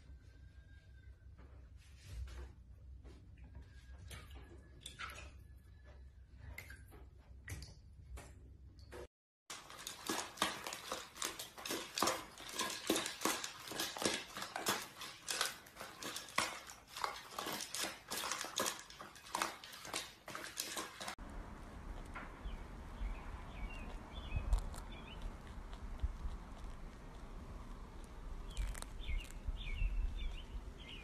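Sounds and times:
dogs crunching dry kibble: 0:09.5 - 0:21.2, 0:23.5 - 0:30.4
kibble rattling against bowls: 0:09.5 - 0:21.2.

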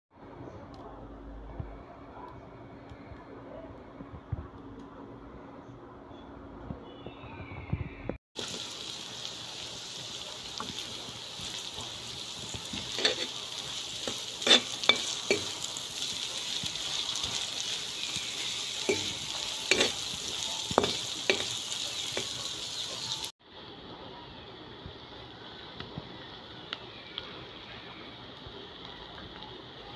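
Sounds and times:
food sizzling in hot oil: 0:08.4 - 0:23.3
spatula knocking and scraping pan: 0:12.7 - 0:13.4, 0:14.0 - 0:15.6, 0:18.8 - 0:22.4.

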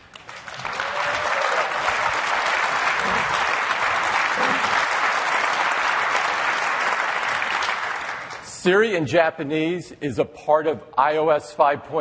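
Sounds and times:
large audience applauding: 0:00.0 - 0:08.5.

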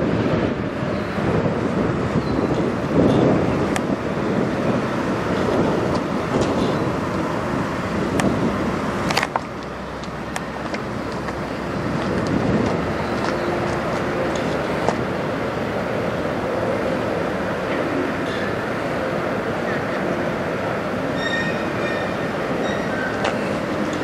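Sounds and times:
vehicle noise: 0:00.0 - 0:24.0.

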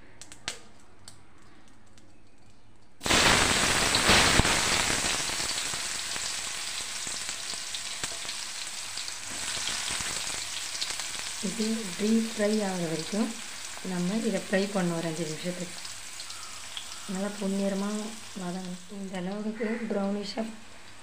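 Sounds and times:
hot oil popping: 0:03.0 - 0:21.0
vegetables sizzling in oil: 0:03.0 - 0:21.0.

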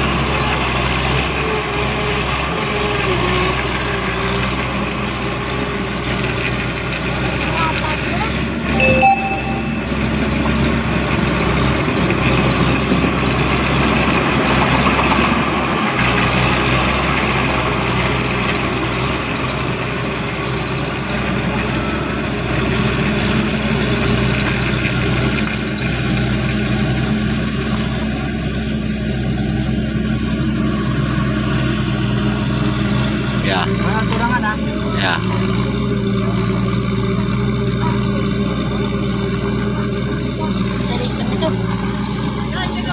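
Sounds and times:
tractor engine running: 0:10.1 - 0:42.9.

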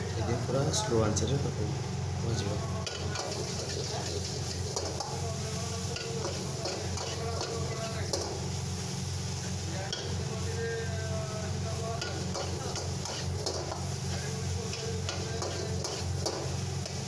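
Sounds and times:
food sizzling in oil: 0:00.0 - 0:17.0
ladle scraping in wok: 0:02.8 - 0:10.3, 0:11.8 - 0:17.0.

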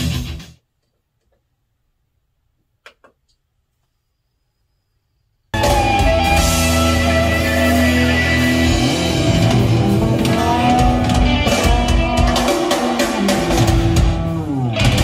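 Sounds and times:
heavy metal music with electric guitar: 0:00.0 - 0:00.5, 0:05.6 - 0:15.0.

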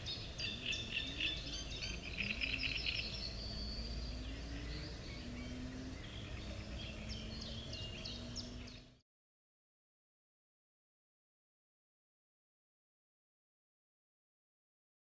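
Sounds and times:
small birds chirping: 0:00.0 - 0:09.0.

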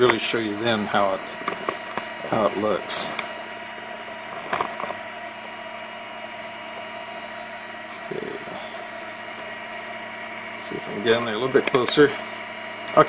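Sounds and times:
cooling fans whirring: 0:00.0 - 0:13.0.

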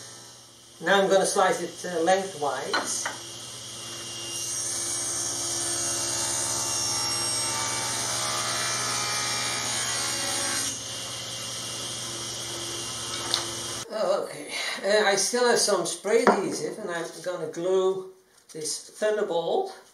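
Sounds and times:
table saw cutting wood: 0:00.0 - 0:13.8
table saw motor humming: 0:00.0 - 0:13.8.

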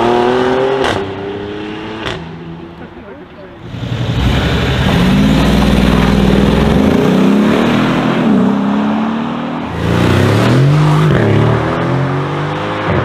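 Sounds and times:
car engine accelerating: 0:03.6 - 0:13.0
v eight engine accelerating: 0:03.6 - 0:13.0.

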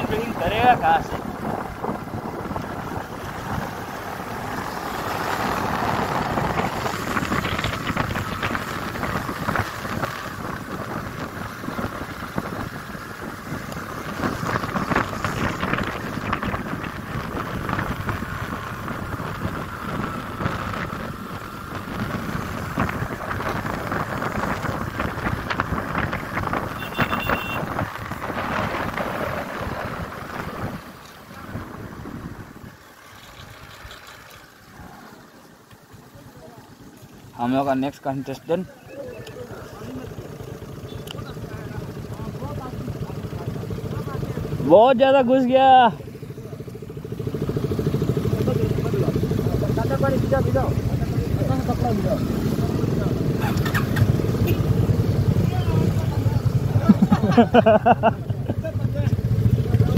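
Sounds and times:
wind rushing on microphone: 0:00.0 - 0:32.8
motor scooter engine running: 0:46.2 - 0:59.9.

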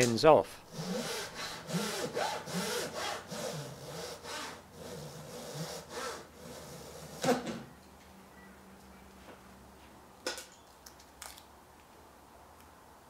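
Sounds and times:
hand saw sawing wood: 0:00.7 - 0:07.3.

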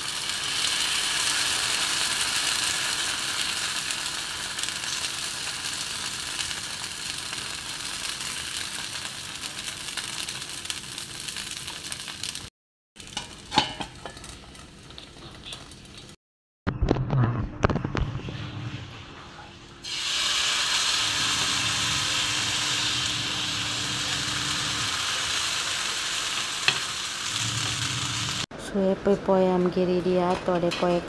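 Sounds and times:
batter sizzling on a pan: 0:00.0 - 0:16.2, 0:19.8 - 0:28.5.

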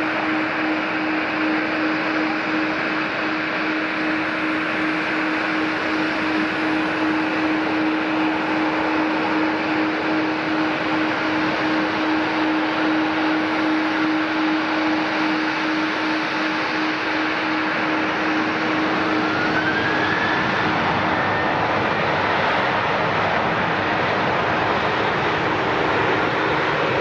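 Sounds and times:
jet aircraft engine hiss: 0:00.0 - 0:27.0.

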